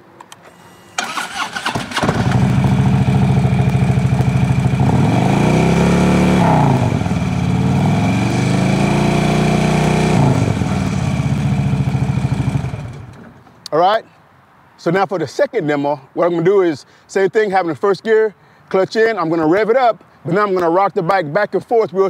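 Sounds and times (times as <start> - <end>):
motorcycle engine starting and revving: 0.4 - 13.4.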